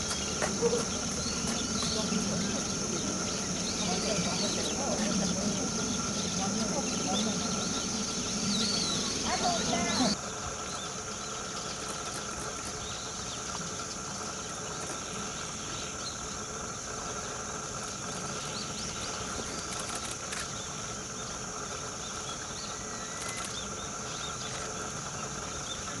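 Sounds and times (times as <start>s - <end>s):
faint bird chirps: 0.0s - 12.2s, 22.0s - 26.0s
steady high hiss: 0.0s - 26.0s.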